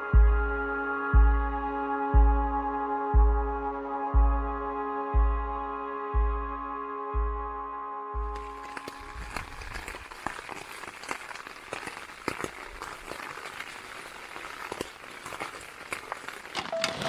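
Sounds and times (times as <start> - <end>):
rain on tent fabric: 8.2 - 17.0.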